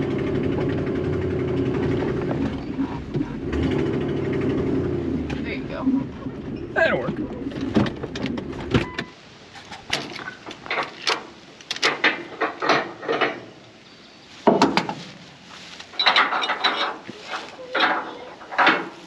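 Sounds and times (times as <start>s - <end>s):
low truck cabin rumble: 0.0s - 11.6s.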